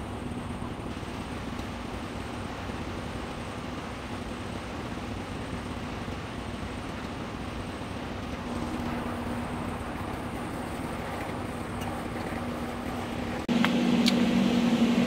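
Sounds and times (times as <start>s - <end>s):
mechanical hum: 0.0s - 15.0s.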